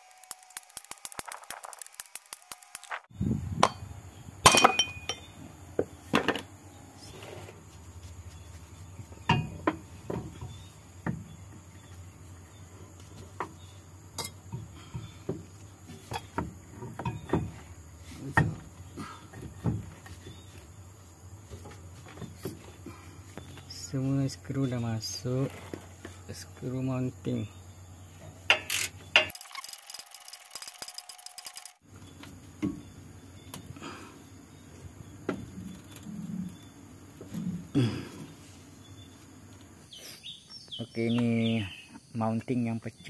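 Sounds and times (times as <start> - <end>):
tools and bolts clinking on metal: 4.4 - 5.4, 13.4 - 15.1, 15.9 - 17.6, 28.4 - 31.8.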